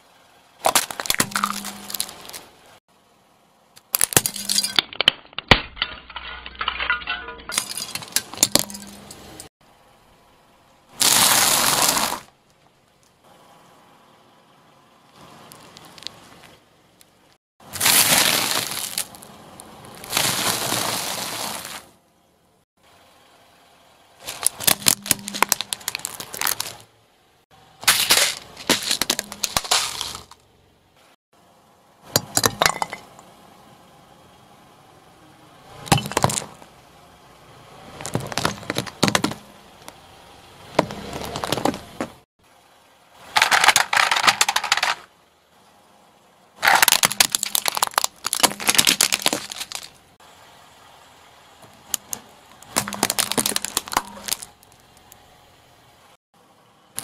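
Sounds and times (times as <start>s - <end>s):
plastic cracking and crunching: 0.6s - 2.5s, 24.2s - 26.8s, 27.8s - 30.4s, 43.3s - 45.0s, 46.6s - 49.9s, 51.9s - 55.2s
car tyre crushing plastic toys: 0.6s - 2.6s, 3.7s - 9.3s, 10.9s - 13.0s, 15.1s - 16.6s, 17.6s - 22.0s, 24.2s - 26.9s, 27.8s - 30.5s, 35.8s - 36.7s, 37.9s - 40.0s, 40.7s - 42.2s, 43.2s - 45.2s, 46.6s - 50.2s, 51.6s - 55.2s.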